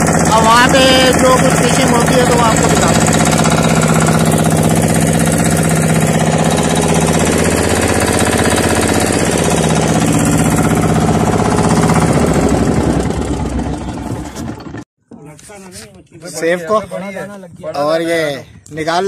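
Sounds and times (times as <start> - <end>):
diesel boat engine knocking: 0.0 - 14.9.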